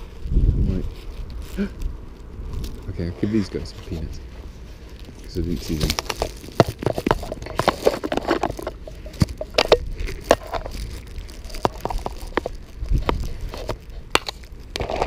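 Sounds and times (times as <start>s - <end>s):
plastic bag crinkling: 4.8s - 15.0s.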